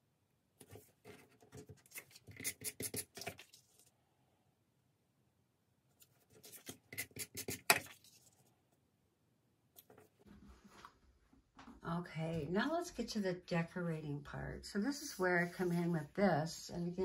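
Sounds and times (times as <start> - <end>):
paper rustling and rubbing: 6.0 - 8.5, 15.0 - 16.2.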